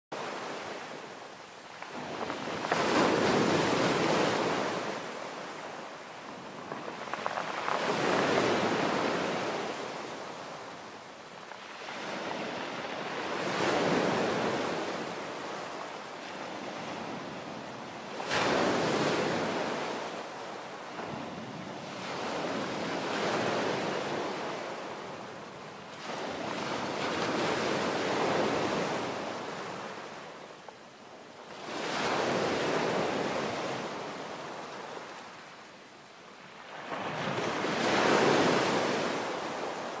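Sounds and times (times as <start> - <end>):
waves washing on pebble beach: 0.2 - 30.2.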